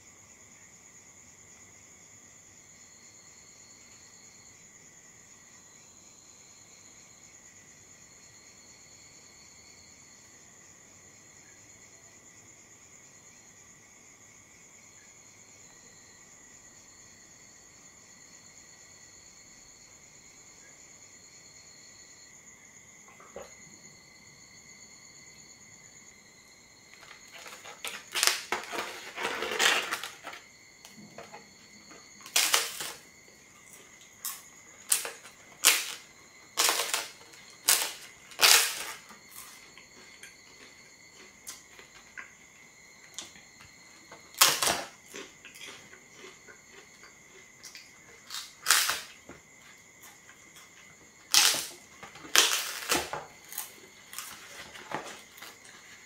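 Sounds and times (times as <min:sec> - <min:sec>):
flatbread crunching and cracking: 0:26.8 - 0:42.4, 0:43.1 - 0:56.0.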